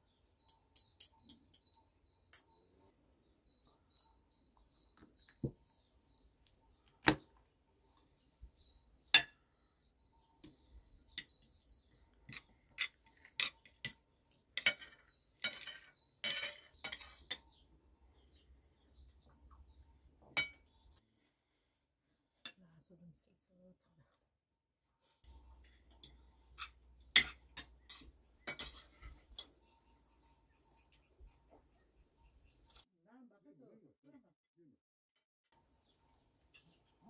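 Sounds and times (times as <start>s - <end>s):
cutlery scraping: 12.3s - 14.0s, 14.6s - 17.6s, 25.5s - 29.6s
cutlery clinking on plates: 14.6s - 17.6s, 25.6s - 29.6s.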